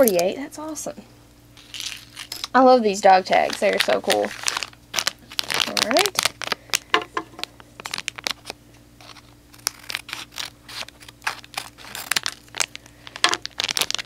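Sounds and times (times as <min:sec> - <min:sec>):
fingers crinkling packaging: 0:01.6 - 0:02.5, 0:03.3 - 0:14.0
scissors snipping foil: 0:03.4 - 0:06.6, 0:07.8 - 0:14.0.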